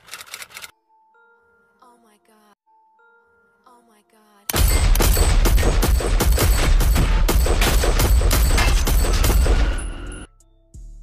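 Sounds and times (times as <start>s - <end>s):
rapid gunfire: 4.5s - 10.1s.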